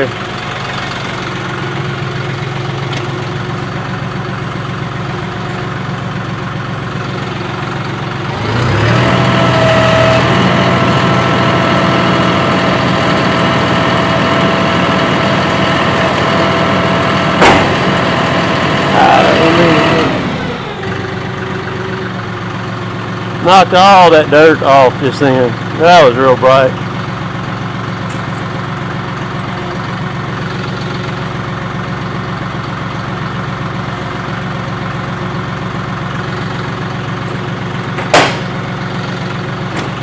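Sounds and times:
hydraulic whine: 0.0s - 22.4s
tractor diesel engine idling: 0.0s - 40.0s
sharp knock: 17.4s - 17.9s, 38.0s - 38.5s.

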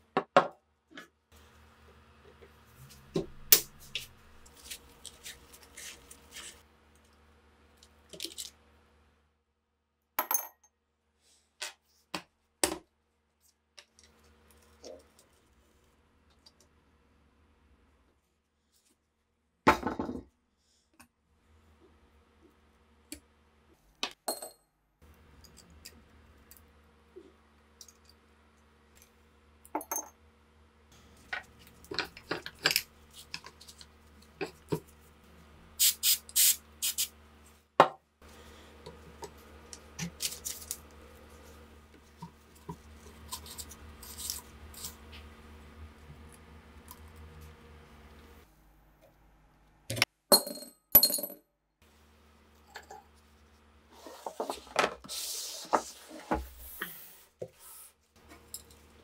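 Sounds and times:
metal parts clicking and clinking: 31.3s - 33.8s
faint steady hum: 38.2s - 50.1s.

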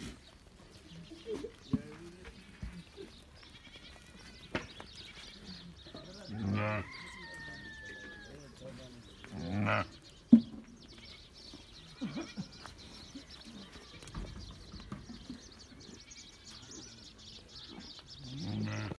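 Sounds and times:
sheep bleating: 6.3s - 8.4s, 9.3s - 10.0s, 17.7s - 19.0s.

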